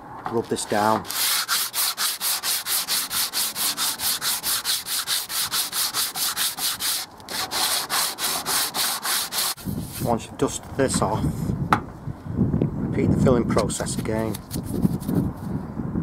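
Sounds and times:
sandpaper rubbing back and forth: 0:01.0 - 0:10.2, 0:13.9 - 0:15.3.

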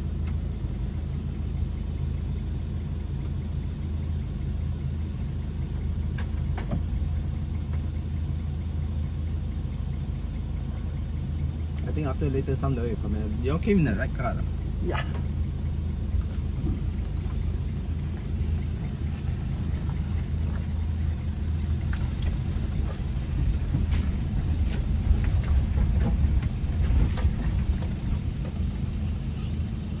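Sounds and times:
car engine and tyre rumble: 0:00.0 - 0:30.0
faint knocks and rattles: 0:16.2 - 0:28.9.

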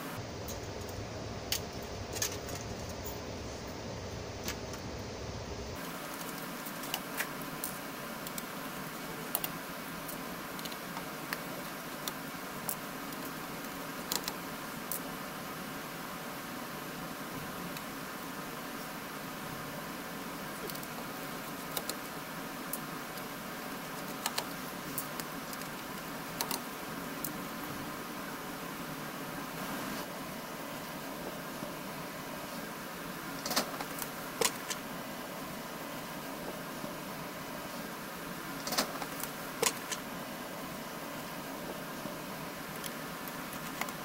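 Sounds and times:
steady hiss: 0:00.0 - 0:44.0
fingers clicking and tapping plastic: 0:20.6 - 0:22.1, 0:24.0 - 0:26.7.

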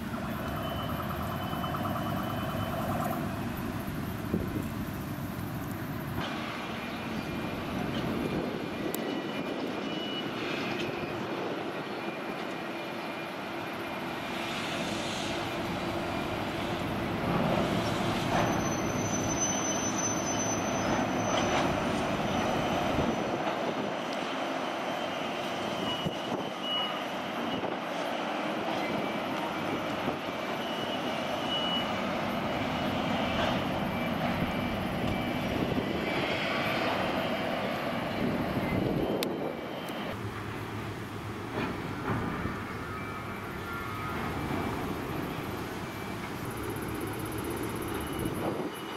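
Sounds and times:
faint high whine: 0:00.0 - 0:07.9
diesel locomotive engine droning: 0:00.0 - 0:48.9.

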